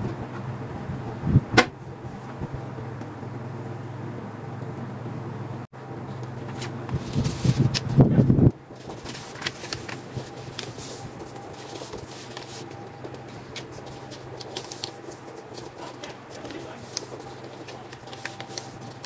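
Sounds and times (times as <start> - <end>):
rough rustling handling noise: 6.2 - 19.0
paper rustling and sliding: 6.4 - 19.0.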